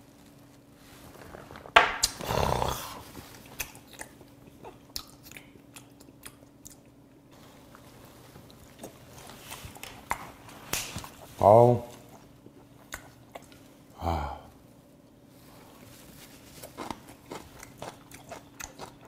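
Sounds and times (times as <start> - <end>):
wet chewing: 3.3 - 7.0, 7.6 - 13.7, 16.4 - 19.0.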